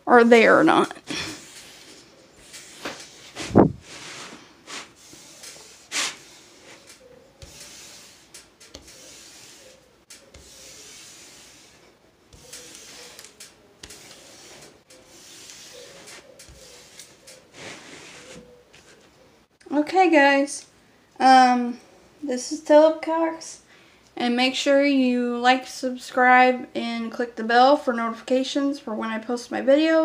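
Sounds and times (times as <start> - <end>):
hand rubbing plastic sheet: 1.1 - 19.1.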